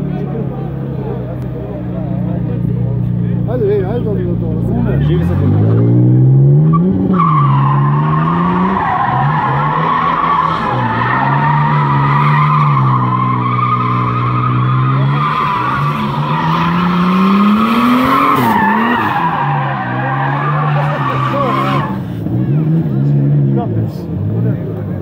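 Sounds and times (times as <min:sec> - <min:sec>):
car engine at high revs: 0:00.0 - 0:25.0
tyres squealing: 0:06.8 - 0:22.0.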